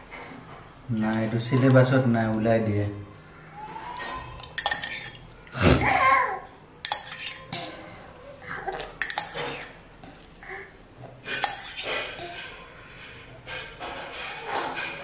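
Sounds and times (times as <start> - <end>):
cup clinking: 4.4 - 5.3, 6.8 - 7.7, 9.0 - 9.8, 11.3 - 12.2.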